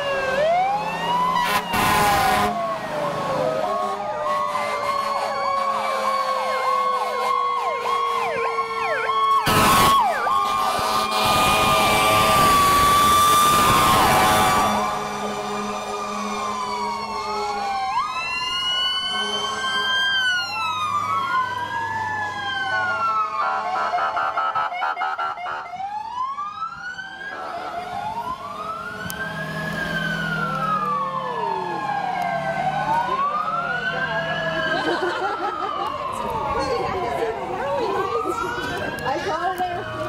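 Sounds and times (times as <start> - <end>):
emergency vehicle sirens wailing: 0.0 - 40.0.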